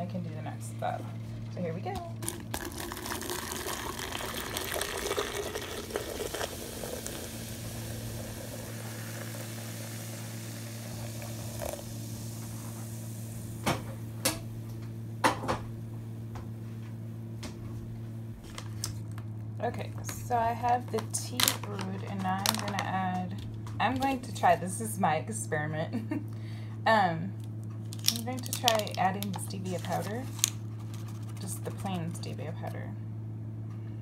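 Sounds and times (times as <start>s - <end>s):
low hum: 0.0s - 34.0s
water pouring into plastic pitcher: 2.2s - 12.5s.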